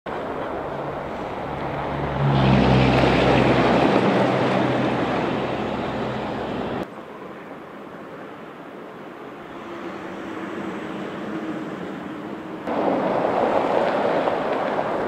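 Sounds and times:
vehicle engine hum passing: 0.1s - 6.9s
tyres rushing on road: 0.1s - 15.0s.

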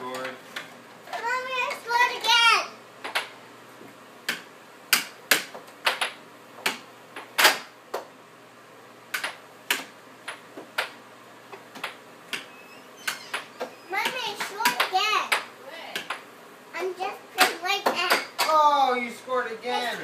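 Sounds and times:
air hockey puck clacking: 4.3s - 6.8s, 9.1s - 11.0s, 14.0s - 16.2s, 17.4s - 18.6s.

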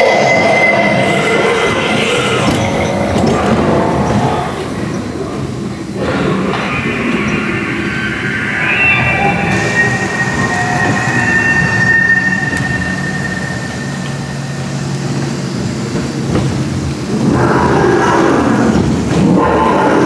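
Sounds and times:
high steady tone: 6.7s - 16.3s.

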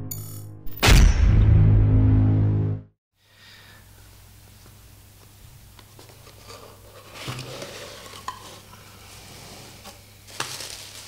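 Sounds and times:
bubble wrap rustling and crinkling: 6.2s - 11.0s.

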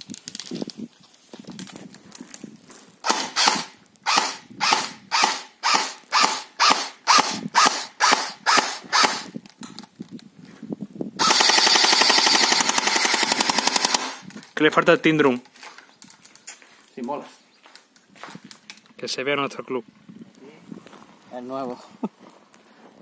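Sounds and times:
airsoft gun firing: 3.0s - 9.3s, 11.2s - 14.2s.

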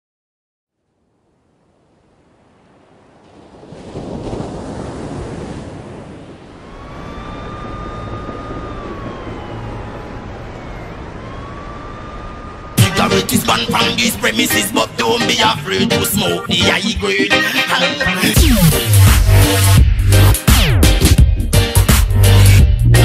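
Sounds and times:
wind on microphone: 2.5s - 14.4s
steady high tone: 10.6s - 20.3s.

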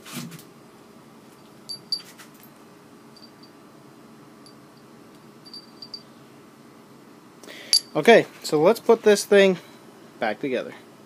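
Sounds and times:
metal gears clinking: 5.5s - 6.0s.

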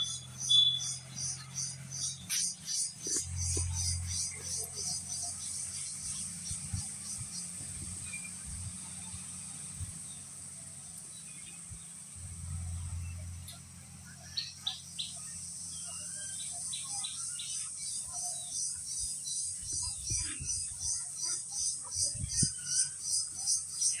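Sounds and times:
high pulsing insect rhythm: 0.0s - 10.5s, 16.5s - 24.0s
birds chirping: 0.0s - 24.0s
insect chorus shrilling: 14.2s - 24.0s.

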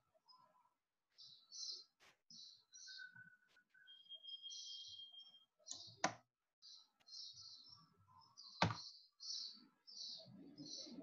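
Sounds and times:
faint high chirps: 0.1s - 6.1s.

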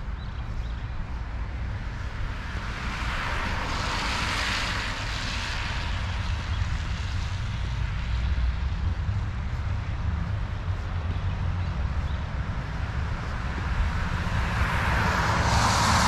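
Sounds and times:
steady low rumble: 4.7s - 16.0s
tyre hiss of passing vehicle: 8.6s - 16.0s.

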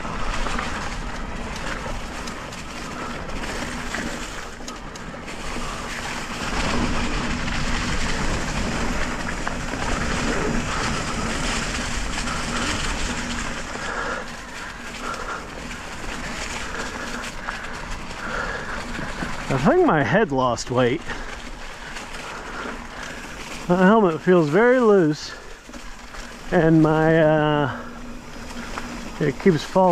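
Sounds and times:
wind rushing over camera: 0.0s - 19.9s
tyres rolling on dirt: 0.0s - 29.9s.

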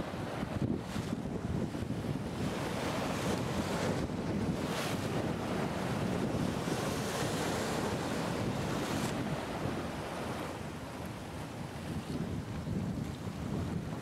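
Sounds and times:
choppy river water: 0.0s - 14.0s
wind buffeting microphone: 0.0s - 14.0s.

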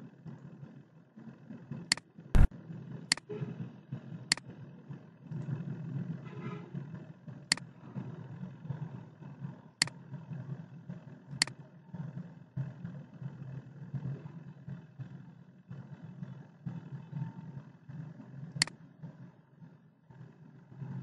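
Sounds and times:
computer mouse clicks: 1.9s - 2.5s.

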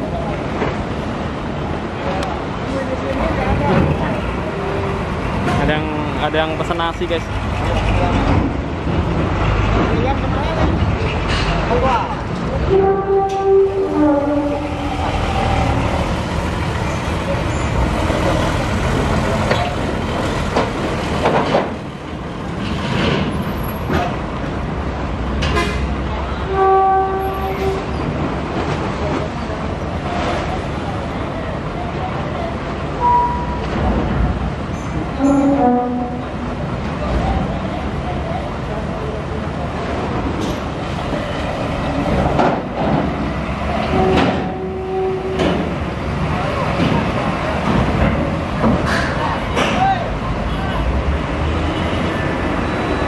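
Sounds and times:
truck engine rumbling: 0.0s - 53.0s
truck horn: 12.7s - 15.0s, 25.5s - 27.9s, 35.2s - 36.4s.

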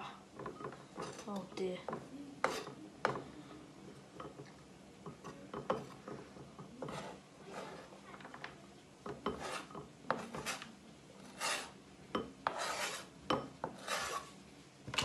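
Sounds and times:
knife scraping chopping board: 0.6s - 1.4s, 2.4s - 2.8s, 5.7s - 8.0s, 9.1s - 11.8s, 12.4s - 15.0s.

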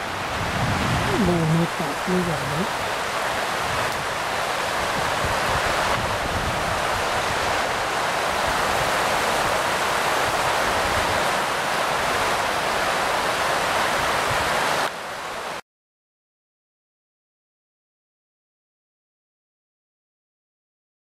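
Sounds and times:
river rushing over rapids: 0.0s - 15.6s.

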